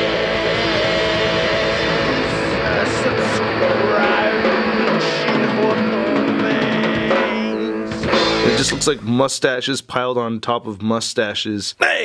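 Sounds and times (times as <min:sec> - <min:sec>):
rock music with guitar and drums: 0:00.0 - 0:09.0.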